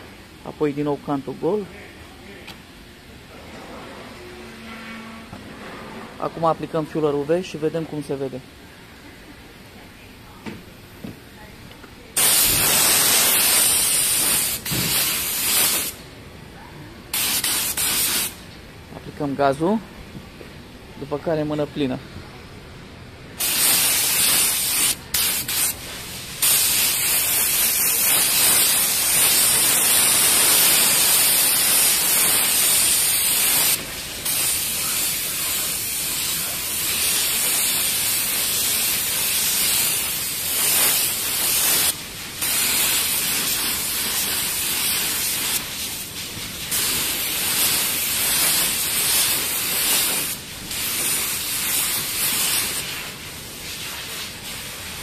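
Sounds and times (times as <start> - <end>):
paint spray gun hissing: 12.2 - 16.0, 17.1 - 18.4, 23.4 - 53.2.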